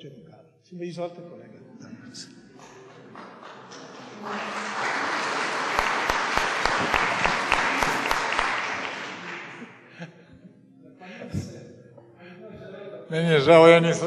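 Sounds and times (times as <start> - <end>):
sharp nearby claps: 2.6 - 9.9
audience applauding: 2.6 - 10.0.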